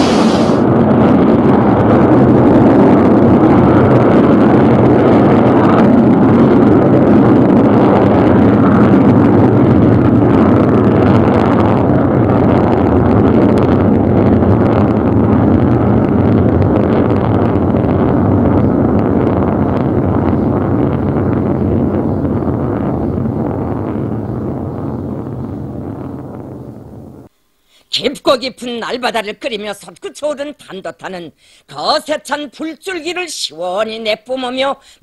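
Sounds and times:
rocket motor rumbling: 0.0 - 27.4.

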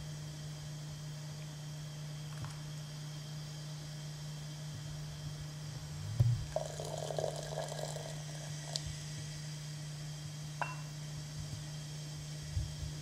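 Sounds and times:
low steady hum: 0.0 - 13.0
water pouring into vessel: 6.5 - 8.8.

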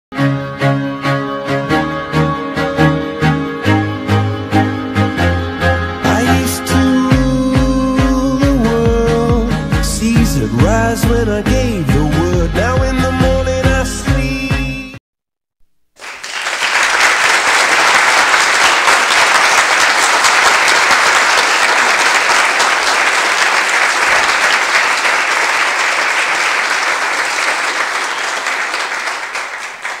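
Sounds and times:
crowd applauding: 16.0 - 30.0.

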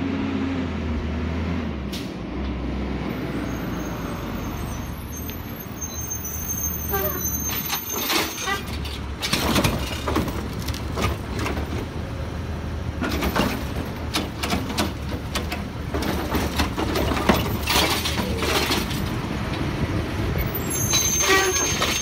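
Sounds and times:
clunks and clatter from cart: 6.9 - 12.0, 12.9 - 19.8, 20.4 - 22.0.

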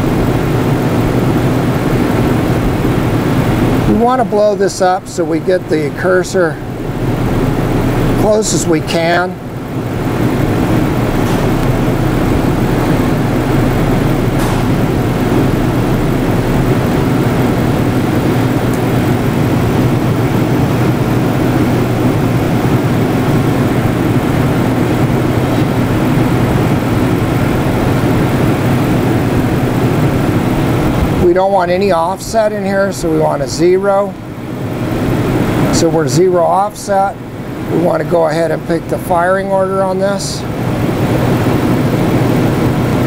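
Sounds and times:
mechanical drone with low hum: 0.0 - 43.0.

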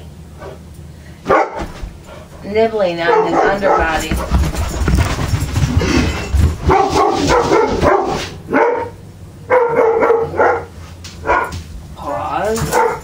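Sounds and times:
dog barking and yipping: 1.3 - 1.7, 3.0 - 5.6, 6.5 - 11.6, 12.6 - 13.0.

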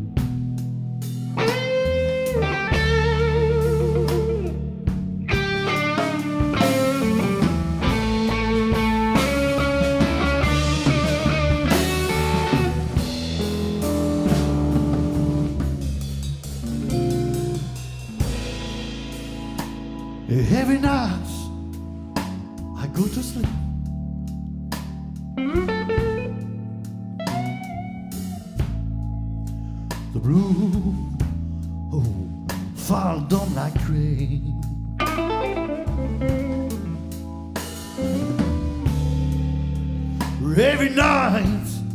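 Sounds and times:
blues band playing: 0.0 - 41.9
electric guitar bent lead notes: 1.2 - 22.7, 25.2 - 29.2, 34.8 - 41.9.

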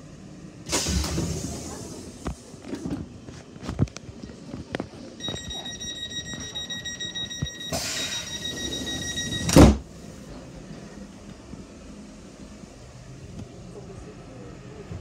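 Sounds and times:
air hiss: 0.7 - 2.2
train doors shutting thump: 0.7 - 3.1, 9.4 - 9.9
train door warning tone: 5.2 - 9.9.

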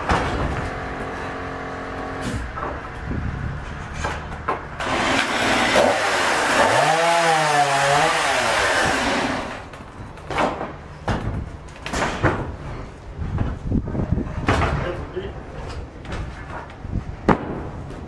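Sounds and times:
saw ripping a board: 4.8 - 9.7.

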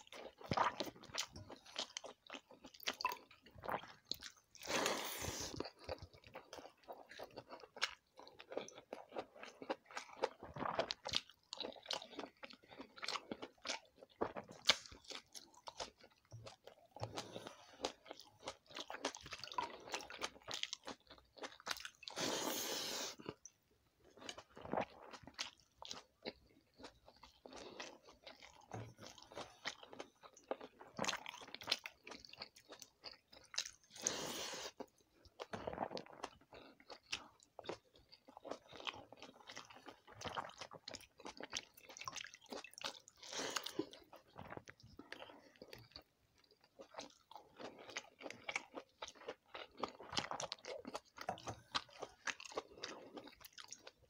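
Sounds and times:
wet chewing and crunching: 0.0 - 54.0
slurping: 4.6 - 5.8, 22.0 - 23.4.

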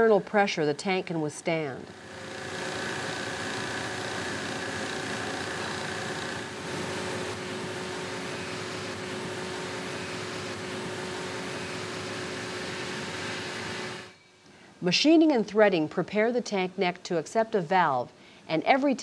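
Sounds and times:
hydraulic press humming: 1.9 - 14.2.

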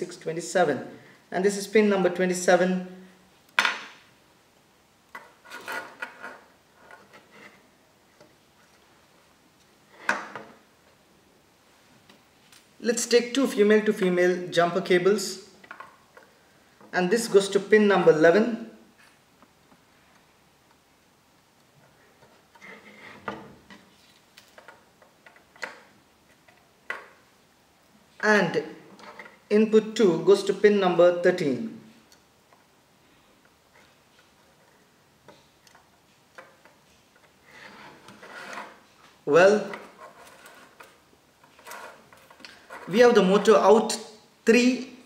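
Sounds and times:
rustling and tapping of small parts: 5.1 - 11.0, 15.6 - 17.0, 19.0 - 27.3, 28.9 - 29.5, 31.9 - 43.0.

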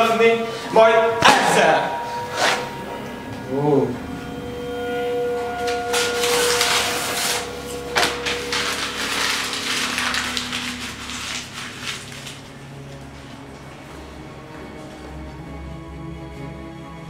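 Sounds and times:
paper tearing and crumpling: 5.9 - 13.5.

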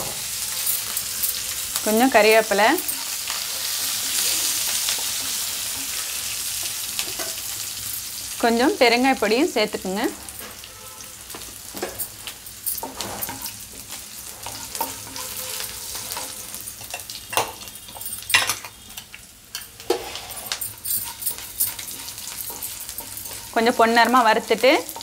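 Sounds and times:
oil sizzling in a frying pan: 0.0 - 25.0
wooden spatula scraping pan: 19.8 - 23.7.

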